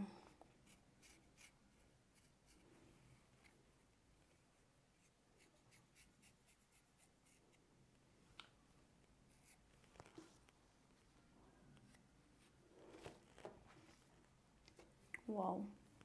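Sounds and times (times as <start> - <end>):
razor blade scraping skin: 0.6 - 2.6.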